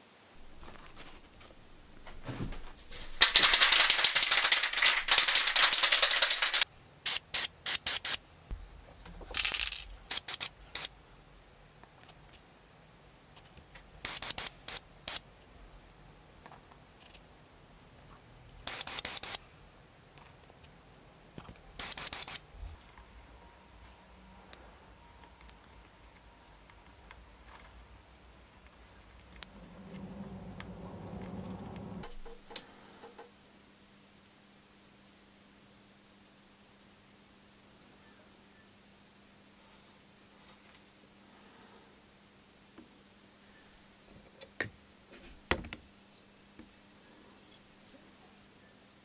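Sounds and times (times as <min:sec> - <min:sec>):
aerosol spray can hissing: 0:00.4 - 0:08.2, 0:10.1 - 0:10.9, 0:14.0 - 0:15.2, 0:18.6 - 0:19.4, 0:21.8 - 0:22.5.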